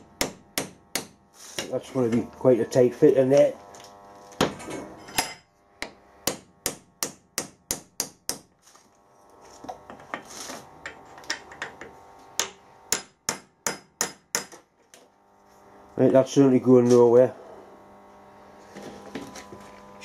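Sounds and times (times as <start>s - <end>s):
hammer tapping metal: 0.0s - 1.8s, 5.2s - 8.5s, 10.8s - 14.6s.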